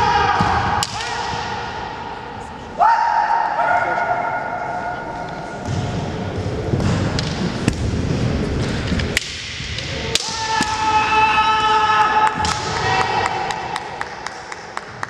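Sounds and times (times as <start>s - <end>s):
bamboo swords clacking: 8.8s - 10.8s.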